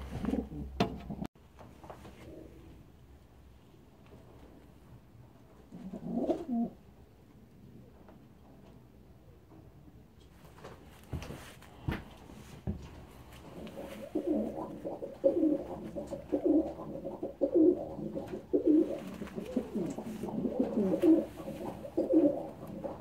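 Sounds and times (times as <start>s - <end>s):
pigeon cooing: 0.0s - 1.3s, 5.7s - 6.8s, 13.4s - 23.0s.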